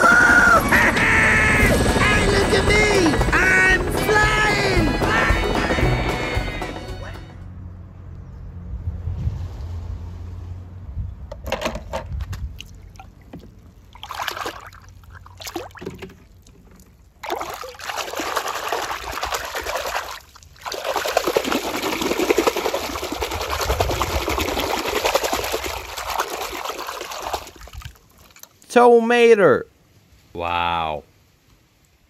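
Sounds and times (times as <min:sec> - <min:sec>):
water running and trickling: 0:12.7 - 0:28.6.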